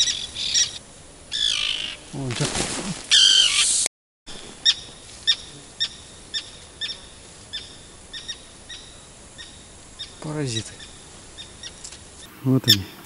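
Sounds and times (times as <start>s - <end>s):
gulls alarm calls: 0.0s - 2.1s, 3.1s - 3.8s.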